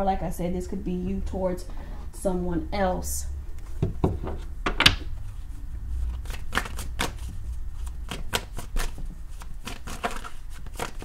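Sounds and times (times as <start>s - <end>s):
cards being shuffled: 5.2s - 11.0s.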